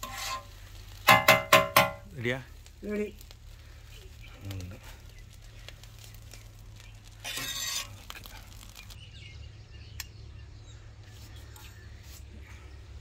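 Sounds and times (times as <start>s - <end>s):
metal spatula scraping griddle: 0.0s - 2.0s, 7.0s - 8.6s.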